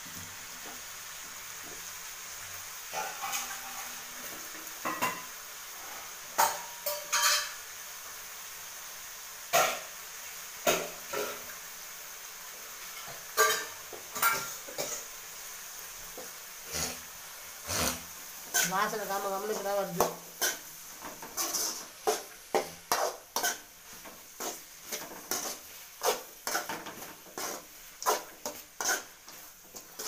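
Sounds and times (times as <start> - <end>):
faint sizzle of frying: 0.0 - 30.0
metal spoon scraping a pan: 2.9 - 4.1, 4.8 - 7.6, 12.8 - 15.1, 16.2 - 30.0.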